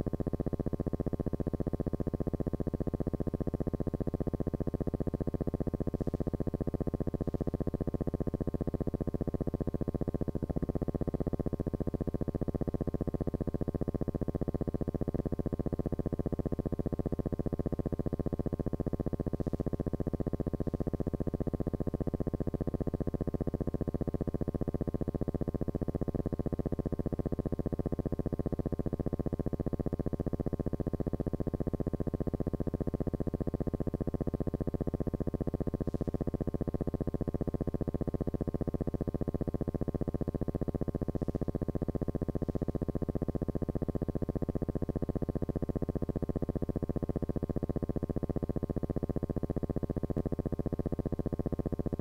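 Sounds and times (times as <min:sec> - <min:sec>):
pulsing synthesizer-like buzzing drone: 0:35.7 - 0:48.4.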